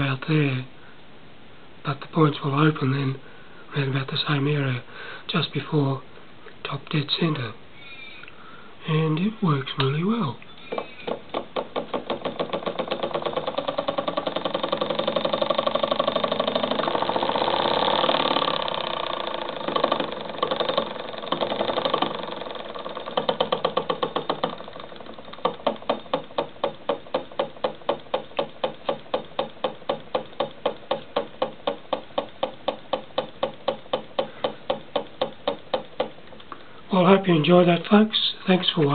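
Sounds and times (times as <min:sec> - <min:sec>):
solenoid engine clacking: 0:10.6 - 0:37.9.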